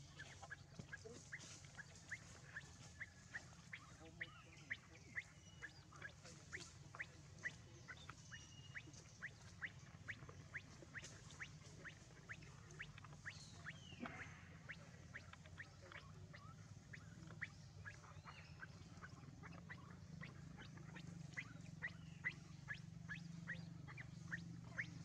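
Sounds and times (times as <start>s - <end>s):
small animal chirping: 0.0s - 25.0s.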